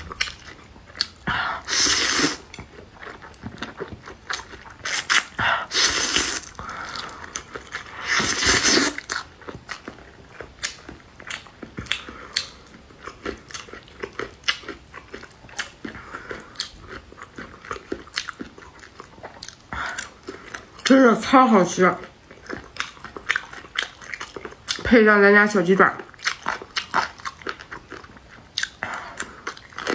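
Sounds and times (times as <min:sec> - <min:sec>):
chewing clicks and smacks: 0:00.0 - 0:01.3, 0:09.0 - 0:20.9, 0:22.2 - 0:24.9, 0:26.0 - 0:29.9
person slurping noodles: 0:01.3 - 0:02.5, 0:04.9 - 0:07.2, 0:07.9 - 0:09.1.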